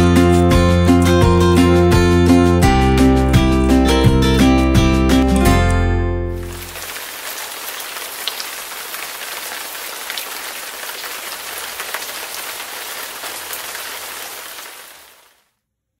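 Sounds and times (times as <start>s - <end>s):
raindrop ticks: 6.4s - 15.2s
steady rain: 6.4s - 15.4s.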